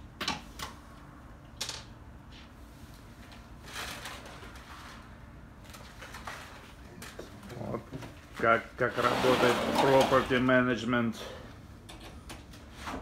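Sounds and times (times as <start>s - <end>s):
short scraping rush: 8.8s - 10.4s.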